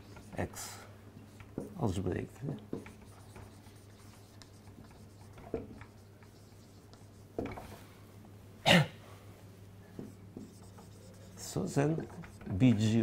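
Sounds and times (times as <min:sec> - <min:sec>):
person coughing: 0:08.6 - 0:09.1.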